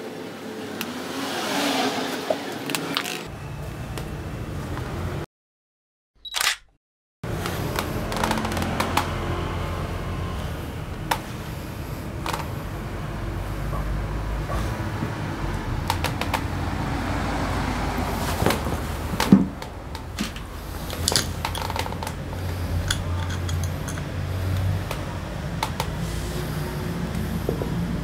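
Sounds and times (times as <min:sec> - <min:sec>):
metal parts clinking: 0:20.3 - 0:24.1.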